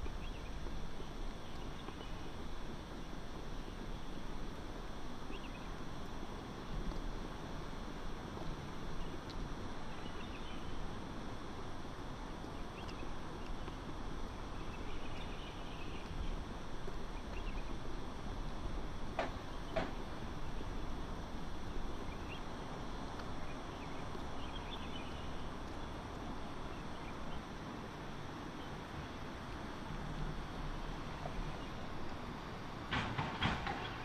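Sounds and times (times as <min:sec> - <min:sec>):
distant traffic rumble: 0:00.0 - 0:34.0
faint bird chirps: 0:12.5 - 0:16.4, 0:17.1 - 0:17.8, 0:23.3 - 0:27.5
sharp knocks: 0:32.9 - 0:34.0.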